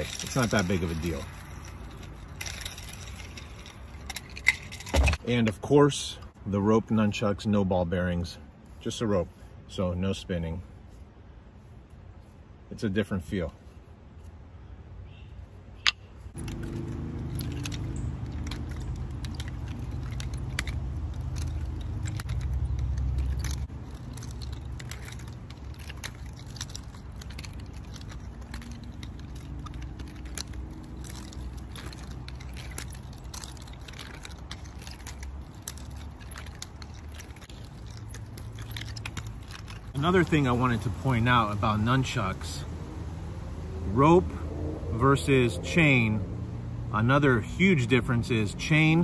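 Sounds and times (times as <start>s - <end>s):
nunchucks clicking and rattling: 0.0s - 5.6s, 15.8s - 42.4s.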